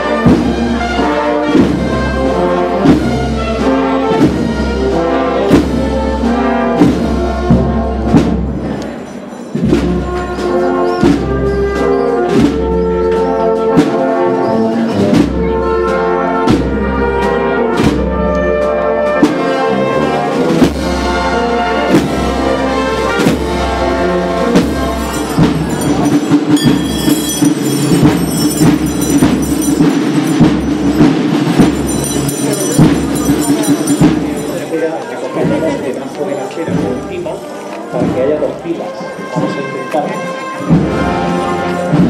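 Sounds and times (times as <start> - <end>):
brass band playing a march: 0.0 - 8.7, 9.6 - 34.7, 38.0 - 42.0
drum beat: 24.4 - 35.6.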